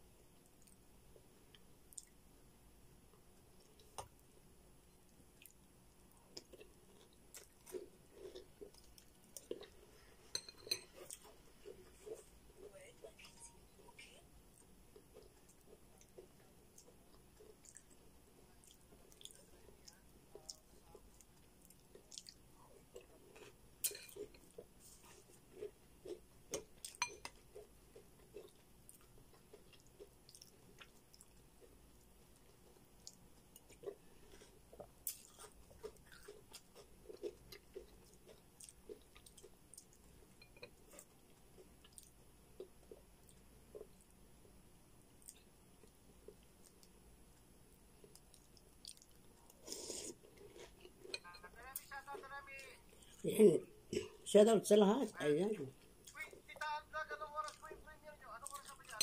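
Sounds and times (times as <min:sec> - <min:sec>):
person chewing crunchy cereal: 0:06.2 - 0:12.6, 0:14.5 - 0:47.0, 0:47.7 - 0:51.3, 0:57.4 - 0:59.0.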